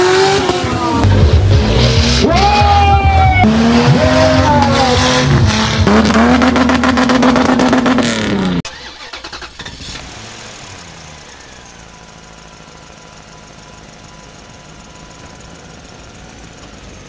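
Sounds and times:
buggy engine revving: 0.0 - 17.0
quiet steady engine-like sound: 8.7 - 17.0.

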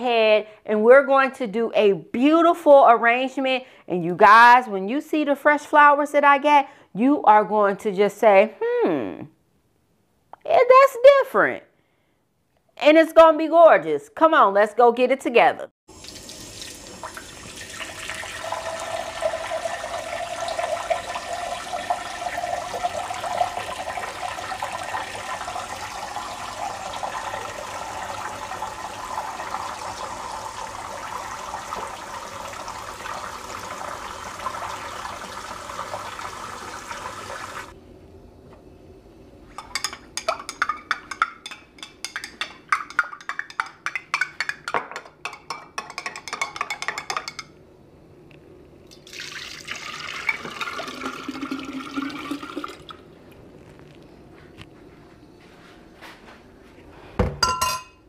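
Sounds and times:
tap water filling container: 15.9 - 37.7, 48.9 - 53.0.

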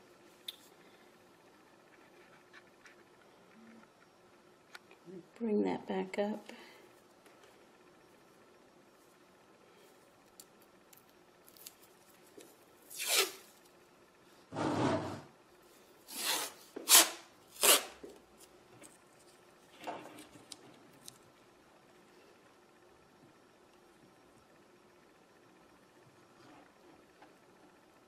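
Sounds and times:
masking tape pulled off roll: 12.9 - 13.6, 16.1 - 18.0.

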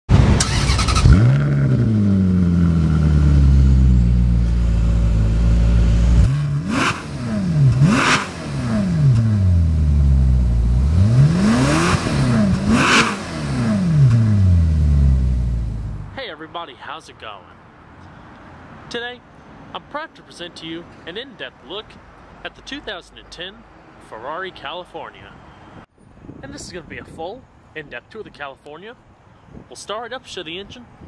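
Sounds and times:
car engine starting and revving: 0.1 - 16.1.

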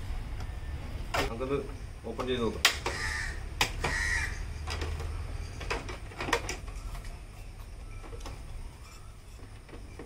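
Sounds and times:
harsh bird call: 2.8 - 4.6.

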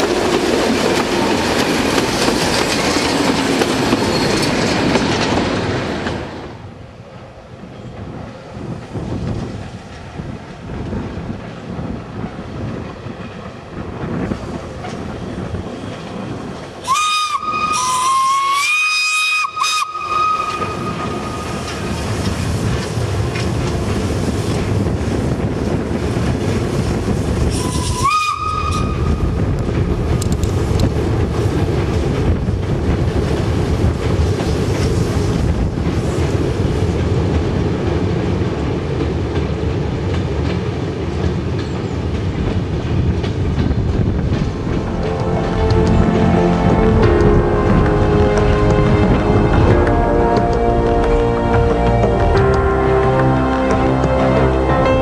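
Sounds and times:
train rumble and rail clatter: 0.0 - 55.0
steam locomotive whistle: 16.8 - 21.8, 27.5 - 29.4.

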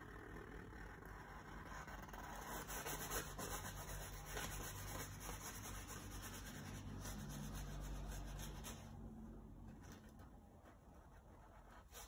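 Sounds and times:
low steady hum: 0.0 - 12.0
brush stroking on canvas: 2.4 - 9.2, 10.6 - 12.0.

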